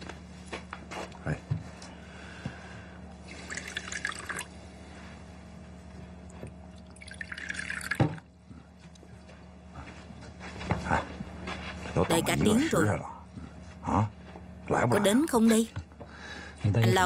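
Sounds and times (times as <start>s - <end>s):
liquid pouring into cups: 3.2s - 4.5s, 6.7s - 8.3s.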